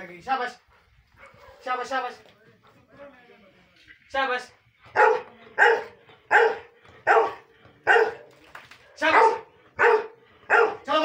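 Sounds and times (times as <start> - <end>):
dog barking: 1.2 - 1.7, 4.9 - 8.2, 8.8 - 10.9.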